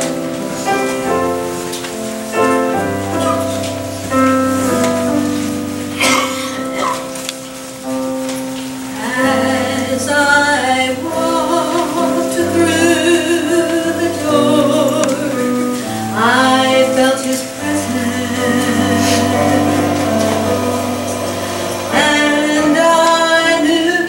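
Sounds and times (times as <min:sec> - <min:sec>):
sustained instrumental accompaniment: 0:00.0 - 0:24.0
woman singing gospel: 0:08.9 - 0:24.0.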